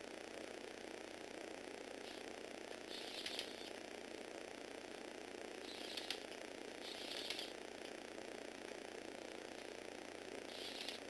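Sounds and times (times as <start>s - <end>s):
electric motor whir: 2.0s - 3.8s, 5.6s - 7.6s, 10.4s - 11.0s
gears rattling and clicking: 2.9s - 3.7s, 5.7s - 7.6s.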